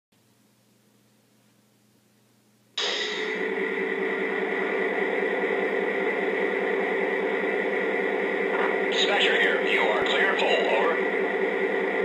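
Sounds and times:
simulated diesel engine idle: 0:03.4 - 0:12.0.

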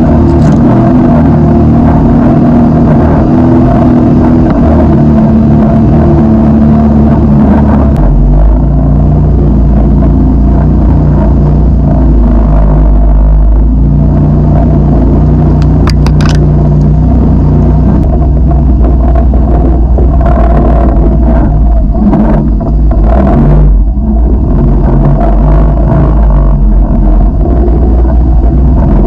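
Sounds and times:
utility vehicle engine running: 0:00.0 - 0:29.0
sharp clicks: 0:15.6 - 0:16.9.

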